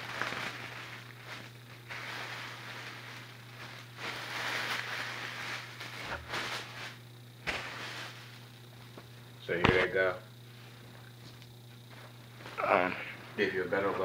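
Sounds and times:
plastic packaging crinkling: 0:00.0 - 0:08.5.

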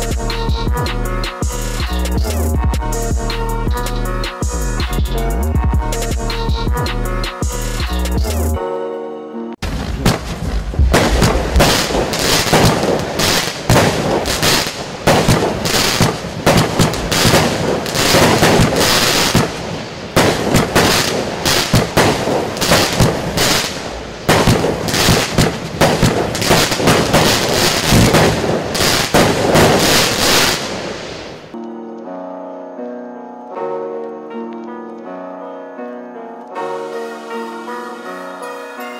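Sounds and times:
fireworks shots crackling: 0:09.6 - 0:31.6.

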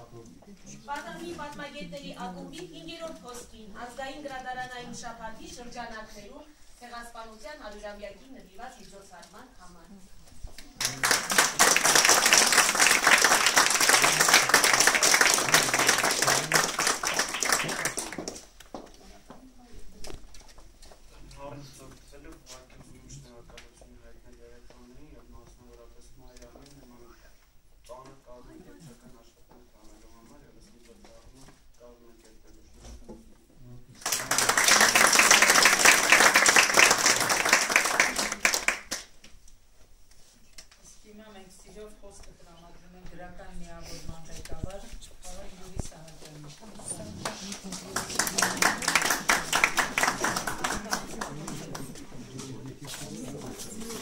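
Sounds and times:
crowd applauding: 0:10.8 - 0:18.4, 0:34.0 - 0:39.1, 0:47.3 - 0:52.0.

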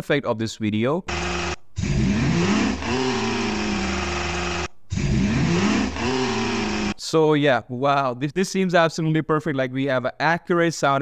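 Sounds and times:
motorcycle engine revving: 0:01.1 - 0:07.0.

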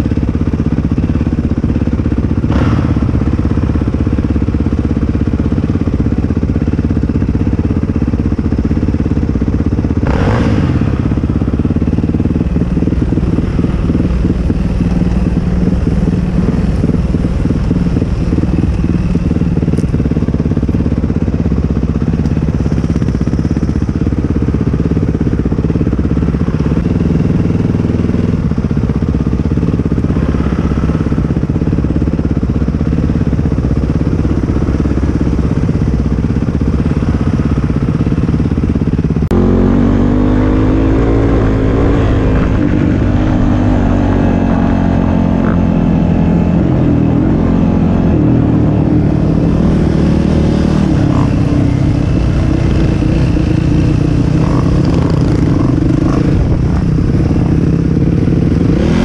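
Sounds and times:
atv engine running: 0:00.0 - 0:59.0.

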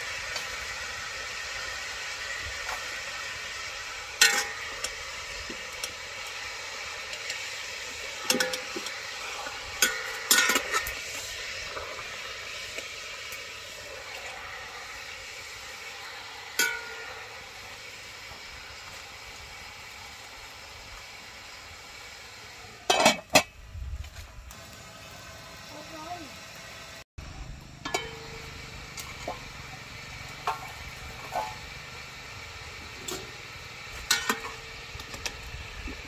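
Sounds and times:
steady hiss: 0:00.0 - 0:36.0
metal pot clinking: 0:04.1 - 0:04.9, 0:08.1 - 0:09.0, 0:09.6 - 0:11.0, 0:16.5 - 0:17.2, 0:22.8 - 0:23.5, 0:27.8 - 0:28.5, 0:34.0 - 0:34.7
metal lid clattering on pot: 0:04.2 - 0:04.6, 0:09.8 - 0:10.9, 0:22.9 - 0:23.5, 0:27.8 - 0:28.2, 0:34.0 - 0:34.6.

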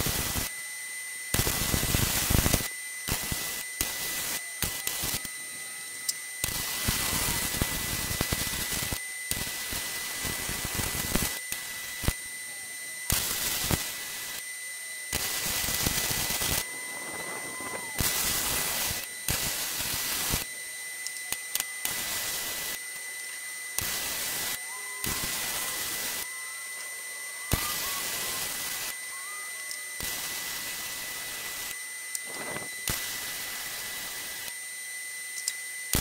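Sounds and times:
welding arc crackling: 0:00.0 - 0:00.5, 0:01.2 - 0:05.4, 0:06.0 - 0:12.4, 0:13.0 - 0:26.7, 0:27.3 - 0:34.6, 0:35.4 - 0:36.0
faint high tone: 0:16.6 - 0:18.0, 0:24.6 - 0:30.0.

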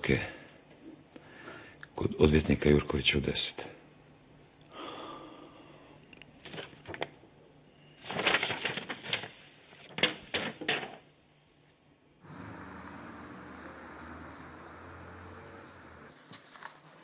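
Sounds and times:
paper rustling and crumpling: 0:06.4 - 0:07.1, 0:08.0 - 0:11.0, 0:16.1 - 0:17.0
distant traffic hum: 0:12.2 - 0:16.1.

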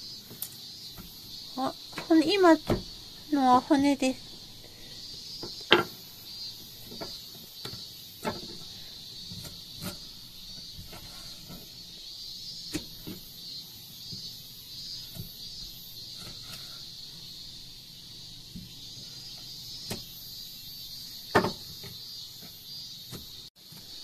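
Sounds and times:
steady high-pitched hiss: 0:00.0 - 0:24.0
knocks and taps on wooden board: 0:21.3 - 0:21.6.

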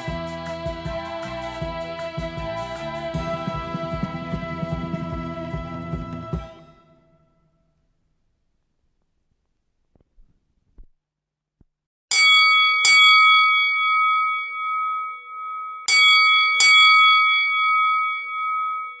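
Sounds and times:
bright bell dings: 0:12.1 - 0:19.0.

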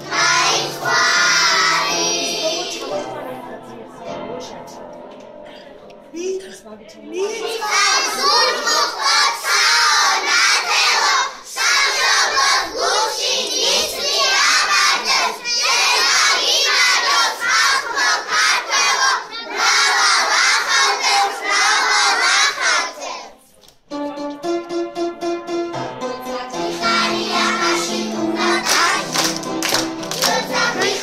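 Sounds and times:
children's choir singing: 0:00.0 - 0:04.2, 0:07.2 - 0:23.5, 0:26.2 - 0:31.0
instrumental music with held notes: 0:00.0 - 0:08.8, 0:23.8 - 0:31.0.

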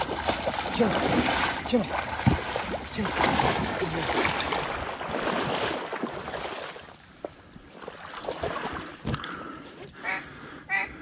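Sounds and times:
water sloshing: 0:00.0 - 0:10.0
duck quack: 0:10.0 - 0:11.0.

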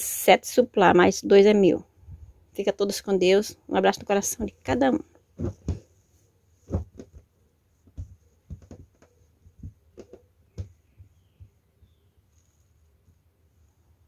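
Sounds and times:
placemats thumping on a table: 0:05.3 - 0:06.0, 0:06.6 - 0:11.6.

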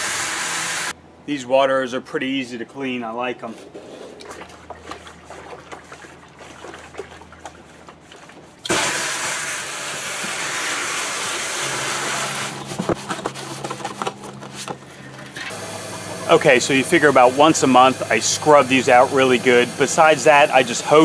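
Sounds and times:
scrubbing inside plastic jug: 0:03.4 - 0:21.0
hose water pouring into jug: 0:03.8 - 0:12.7, 0:15.5 - 0:21.0.

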